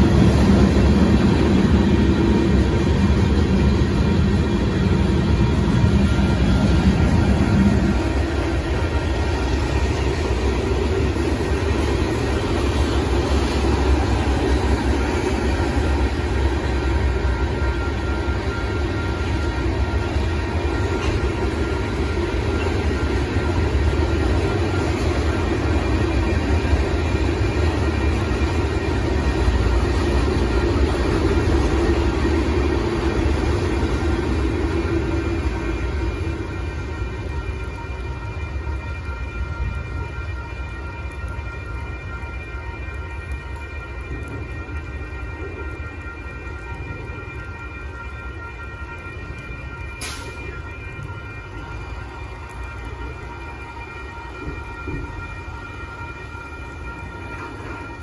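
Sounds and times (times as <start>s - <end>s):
freight train wheels rumbling: 0.0s - 58.0s
high ringing tones: 0.0s - 58.0s.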